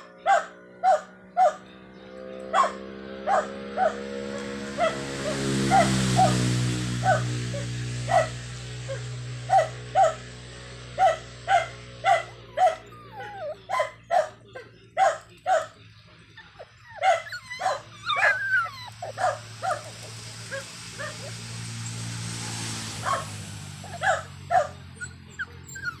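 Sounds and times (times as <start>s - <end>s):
dog yipping: 0.2s - 1.6s, 2.6s - 4.0s, 4.8s - 6.4s, 7.0s - 10.3s, 11.0s - 21.4s, 23.0s - 26.0s
steady low hum: 4.3s - 26.0s
dog whimpering: 11.0s - 21.3s, 23.9s - 26.0s.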